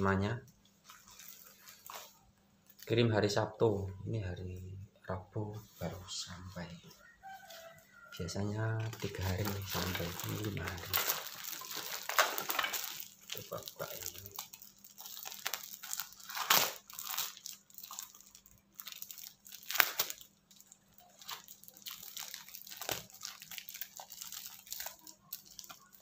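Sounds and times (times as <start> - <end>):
wrapping paper crinkling and tearing: 0.8 - 3.0, 8.7 - 26.0
loud paper crackles: 8.8 - 26.0.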